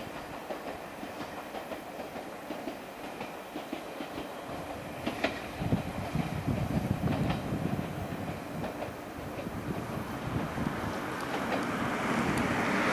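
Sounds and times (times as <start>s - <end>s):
car driving past: 10.6s - 12.9s.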